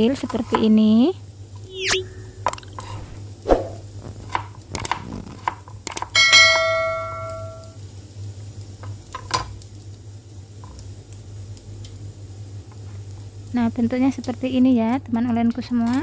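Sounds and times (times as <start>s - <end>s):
steady low hum: 1.3s - 4.9s
bright metallic ring: 6.2s - 7.8s.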